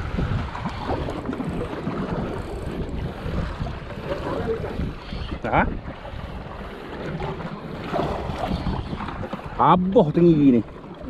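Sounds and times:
sea washing around a boat: 0.0s - 11.0s
wind buffeting microphone: 0.0s - 11.0s.

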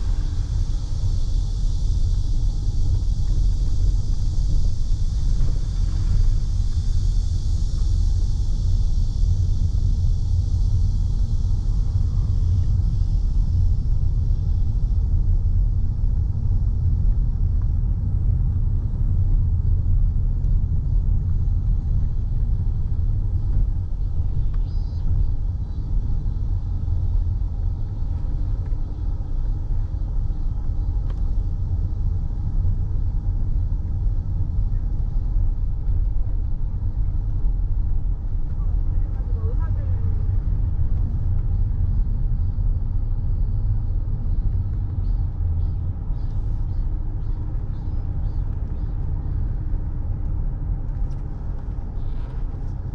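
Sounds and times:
cicadas buzzing: 0.0s - 17.3s, 21.2s - 52.8s
car road and engine rumble: 0.0s - 52.9s.

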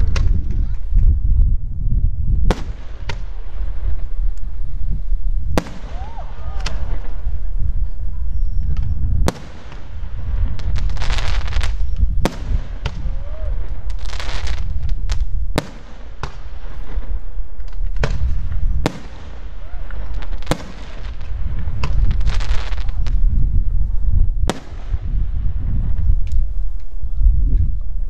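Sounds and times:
low rumble: 0.0s - 2.6s
firework crackling: 2.2s - 27.2s
firework bangs: 2.4s - 23.7s, 24.4s - 26.2s.

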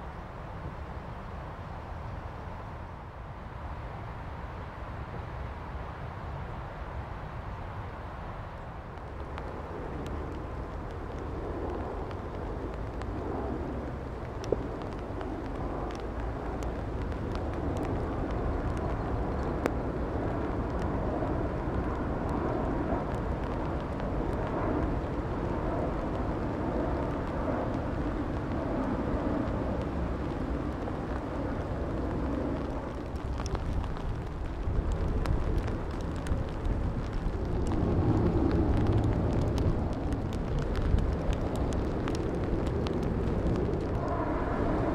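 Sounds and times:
distant engine rumble: 23.0s - 44.9s.

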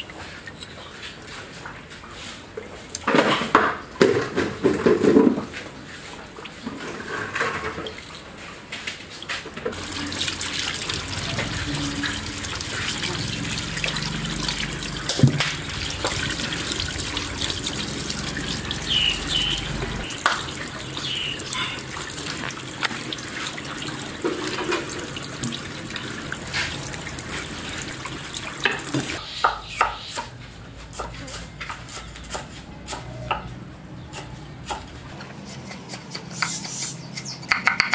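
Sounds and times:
tap water splashing into sink: 9.3s - 29.2s.

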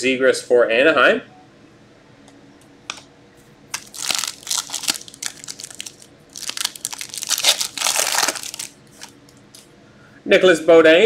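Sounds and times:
foil wrapper tearing and crinkling: 3.7s - 9.6s.

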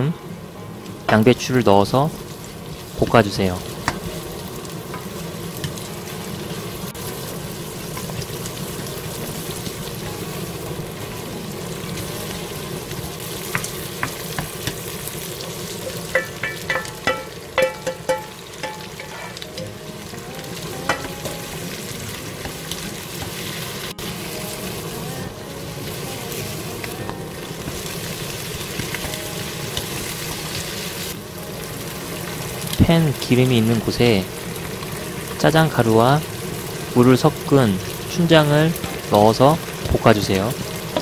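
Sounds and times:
food sizzling in frying pan: 0.0s - 41.0s
spatula clinking against pan: 16.1s - 19.8s.

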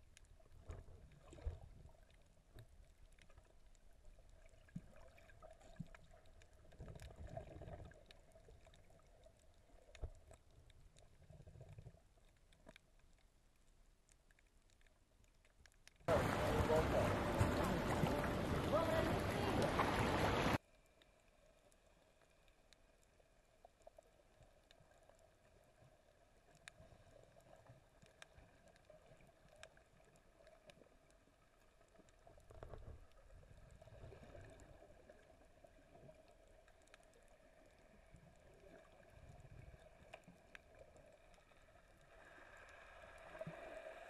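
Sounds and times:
faint underwater hush: 16.1s - 20.6s
low swishes of water: 16.1s - 20.6s.

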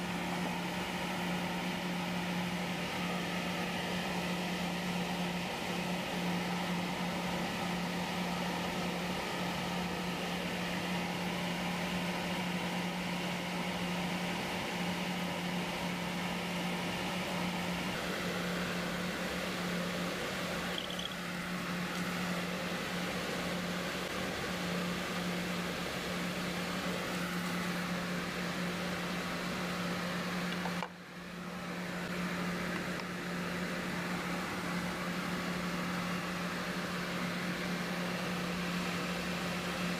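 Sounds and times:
machinery motor hum: 15.7s - 39.9s.

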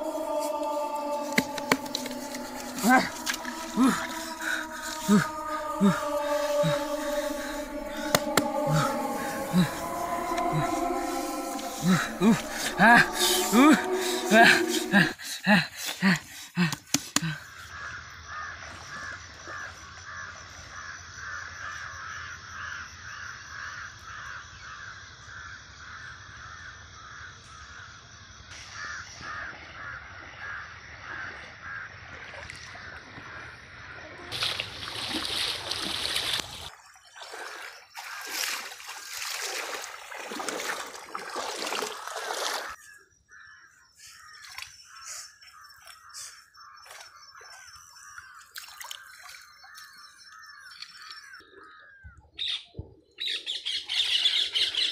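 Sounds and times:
water splashing by hand: 0.0s - 17.4s, 34.3s - 42.8s, 46.8s - 51.2s.

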